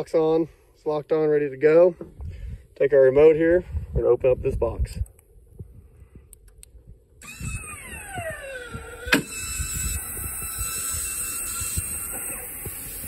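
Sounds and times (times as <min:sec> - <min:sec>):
linear actuator whirring: 0:07.2 - 0:13.0.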